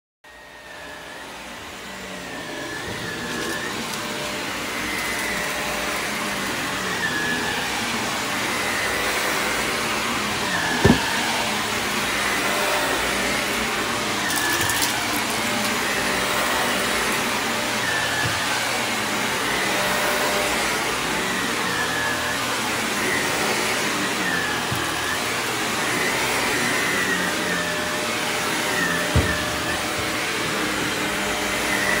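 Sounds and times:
vacuum cleaner running over carpet: 0.3s - 32.0s.

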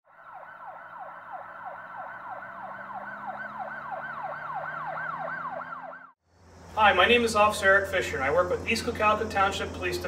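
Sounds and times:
electronic siren yelping: 0.1s - 6.2s.

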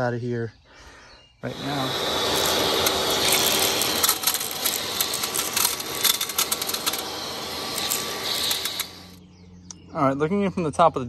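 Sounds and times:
vacuum cleaner running: 1.4s - 9.2s
glass rattling through nozzle: 1.8s - 9.2s.

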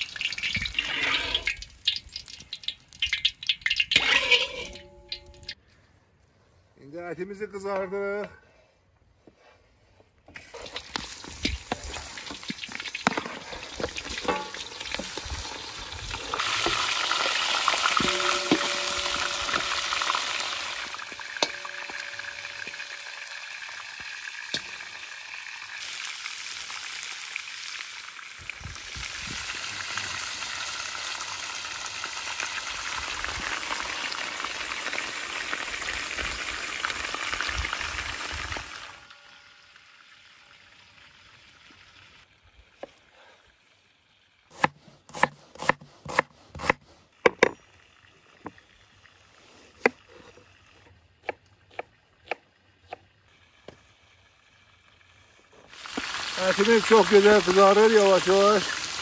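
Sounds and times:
meat sizzling in hot fat: 0.0s - 4.6s, 10.5s - 39.0s, 55.7s - 59.0s
metal skimmer clicks and scrapes: 2.6s - 5.6s, 13.0s - 15.0s.

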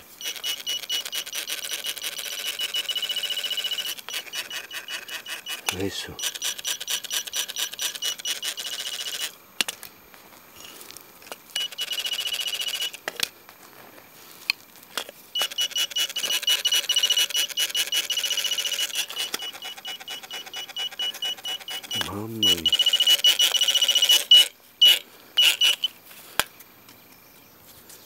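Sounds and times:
metal detector pulsing tone: 0.2s - 9.3s, 11.6s - 13.0s, 15.4s - 26.0s.

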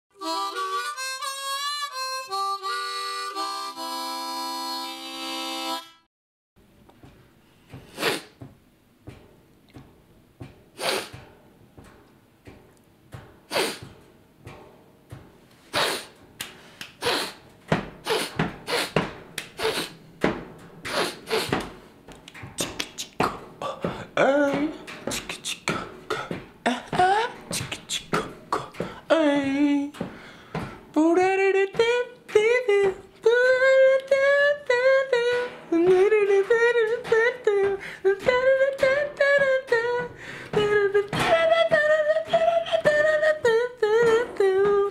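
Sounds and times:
harmonica riff with bent notes: 0.1s - 6.1s
man beatboxing: 15.7s - 16.1s, 17.0s - 17.4s, 18.0s - 20.0s, 20.9s - 21.6s, 22.6s - 30.0s, 31.0s - 44.9s.

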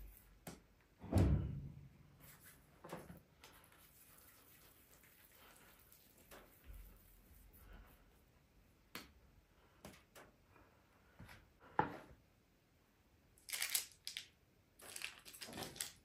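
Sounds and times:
parchment paper rustling: 14.8s - 16.0s.

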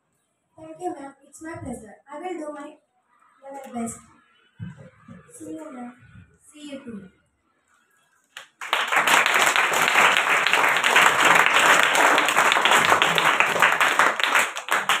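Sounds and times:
group of people applauding: 8.4s - 15.0s.

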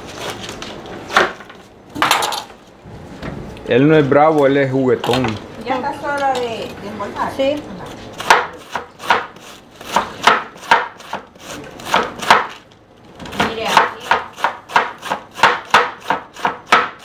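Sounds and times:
knife shredding cabbage: 7.9s - 12.6s.

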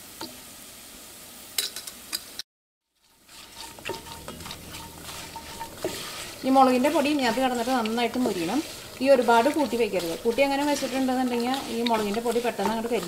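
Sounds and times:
spices sizzling in hot oil: 0.0s - 13.0s
spoon scraping a pot: 3.0s - 13.0s.

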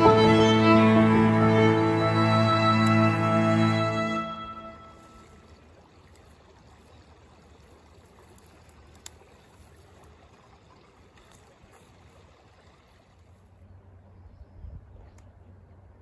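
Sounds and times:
background music: 0.0s - 5.0s
faint outdoor hiss: 0.0s - 16.0s.

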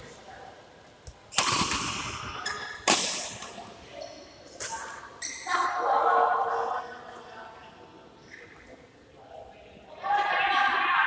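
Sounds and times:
badminton racket hitting shuttlecock: 1.4s - 3.6s.

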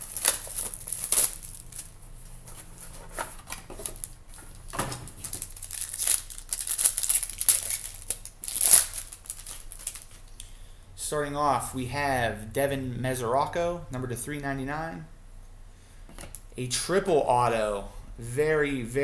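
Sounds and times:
foil wrapper crinkling and tearing: 0.0s - 1.9s, 2.8s - 10.4s.

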